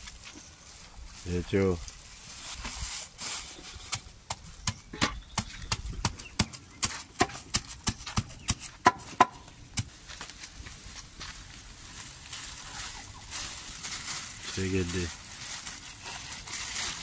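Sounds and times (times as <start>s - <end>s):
wooden stick pounding on wood: 3.9s - 9.9s.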